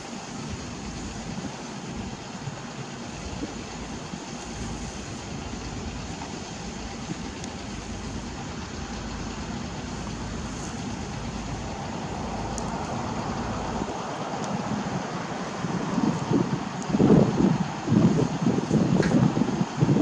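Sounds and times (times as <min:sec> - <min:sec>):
heavy engines idling: 0:00.0 - 0:20.0
faint metallic ticks: 0:12.5 - 0:13.0.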